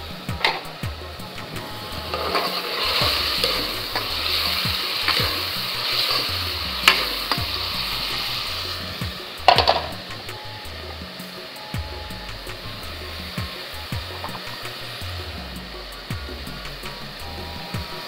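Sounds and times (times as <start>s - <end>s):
onions sizzling in hot oil: 0.0s - 18.0s.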